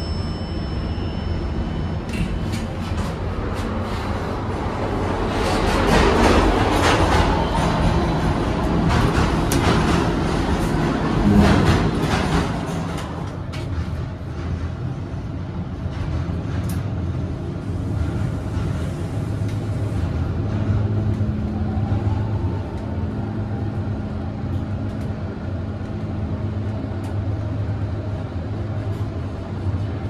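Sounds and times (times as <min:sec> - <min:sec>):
elevator low hum: 0:00.0 - 0:30.0.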